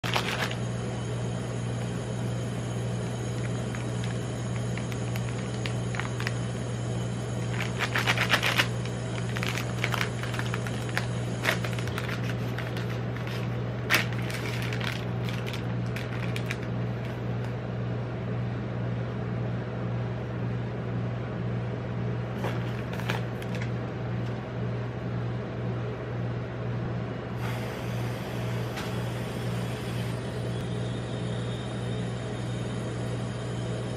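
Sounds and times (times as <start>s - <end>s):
plastic wrapper crinkling and tearing: 0.0s - 0.6s, 3.4s - 6.4s, 7.5s - 17.2s, 22.4s - 23.7s
low machine hum: 0.0s - 33.9s
whipped cream aerosol hiss: 27.4s - 30.3s.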